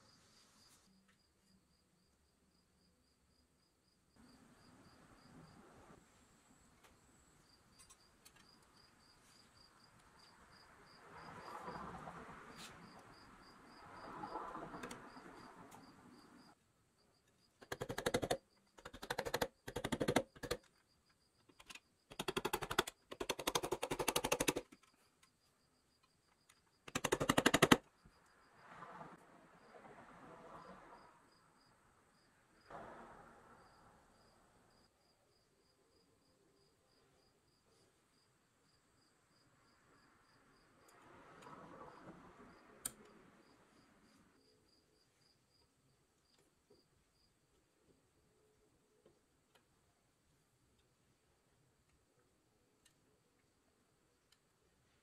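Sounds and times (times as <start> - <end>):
rapid mechanical rattling: 26.9 - 27.8.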